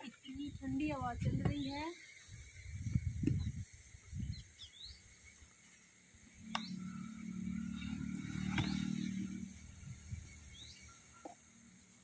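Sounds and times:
outdoor background noise: 0:00.0 - 0:12.0
dull low thumps: 0:00.5 - 0:01.8, 0:02.7 - 0:04.5
bird chirps: 0:01.4 - 0:11.9
steady low hum: 0:02.2 - 0:12.0.

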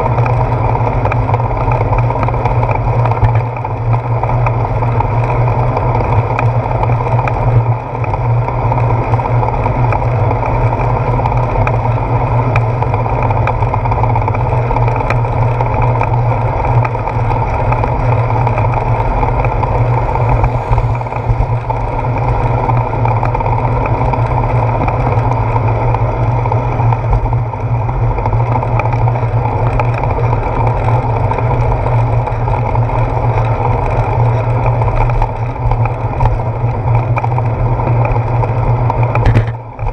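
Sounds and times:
bicycle riding rumble on wet road: 0:00.0 - 0:39.9
wind: 0:00.0 - 0:39.9
small knocks from bumps: 0:39.2 - 0:39.9.

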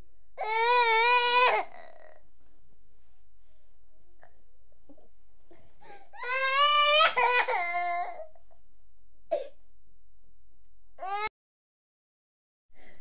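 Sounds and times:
small child crying: 0:00.4 - 0:02.2, 0:06.2 - 0:08.3, 0:11.0 - 0:11.3.

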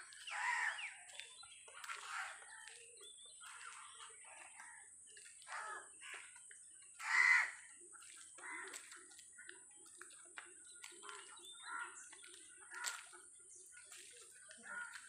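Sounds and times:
bird calls: 0:00.0 - 0:15.0
crows cawing: 0:00.3 - 0:00.9, 0:05.4 - 0:06.4, 0:07.0 - 0:09.0, 0:11.1 - 0:12.0, 0:12.6 - 0:13.1, 0:14.5 - 0:15.0.

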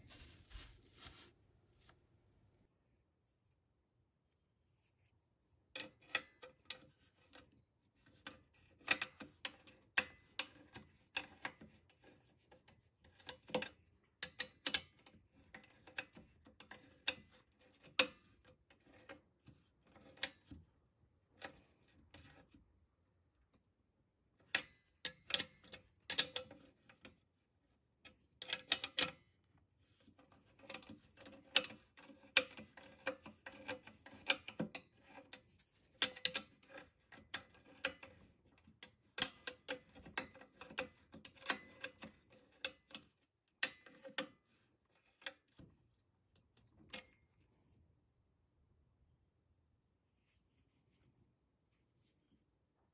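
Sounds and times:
spanner clicking on metal nut: 0:13.1 - 0:18.3, 0:24.5 - 0:27.1, 0:36.0 - 0:44.3.

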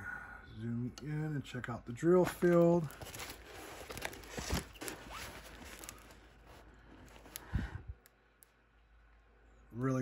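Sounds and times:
plastic film rustling and crinkling: 0:02.0 - 0:08.1.

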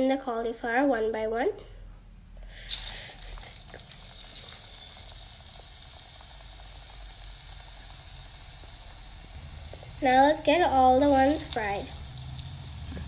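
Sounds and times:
food deep-frying in hot oil: 0:02.6 - 0:13.0
oil popping: 0:02.7 - 0:13.0.

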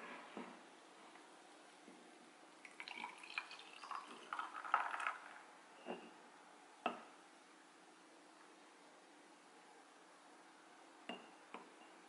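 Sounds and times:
milk foam splashing into glass: 0:02.6 - 0:05.4.

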